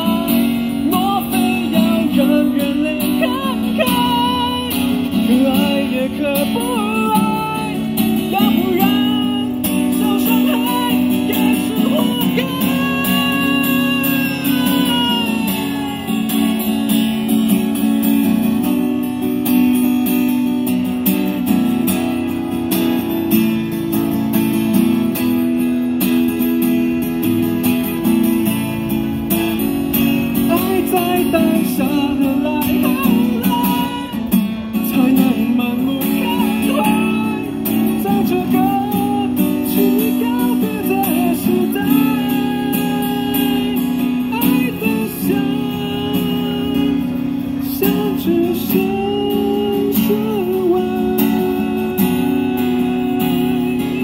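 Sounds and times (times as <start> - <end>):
person singing into a microphone: 0.0 - 17.2, 30.4 - 54.0
strummed acoustic guitar: 0.0 - 54.0.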